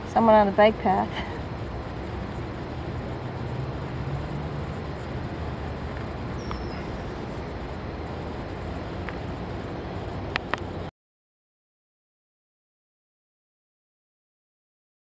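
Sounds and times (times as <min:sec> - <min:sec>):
road traffic: 0:00.0 - 0:10.9
vehicle engine hum: 0:00.0 - 0:10.9.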